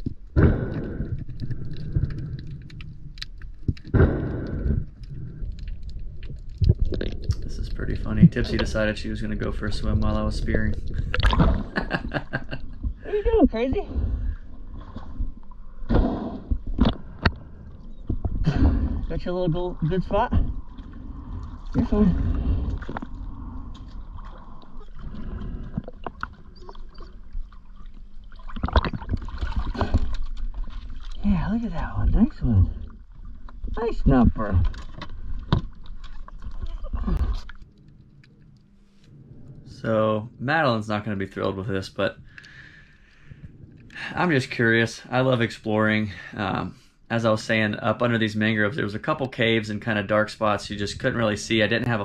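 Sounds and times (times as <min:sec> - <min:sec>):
water sloshing and splashing: 0:00.0 - 0:40.0
underwater rumble: 0:00.0 - 0:52.0.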